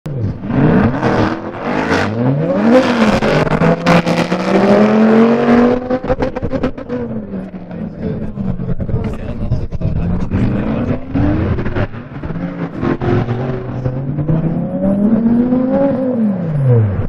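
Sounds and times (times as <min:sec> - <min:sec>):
sports car engine revving: 0:00.1 - 0:17.0.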